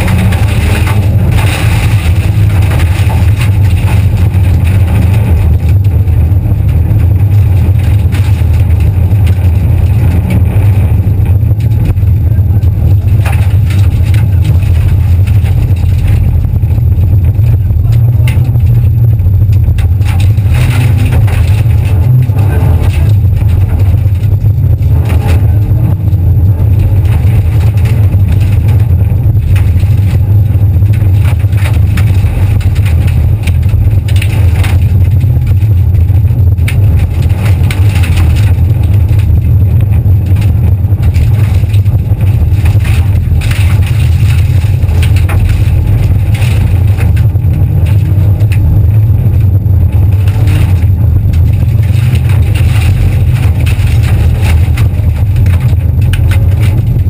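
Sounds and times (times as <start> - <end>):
gravel pinging against car: 0.0 - 57.0
rally car engine running hard: 0.0 - 57.0.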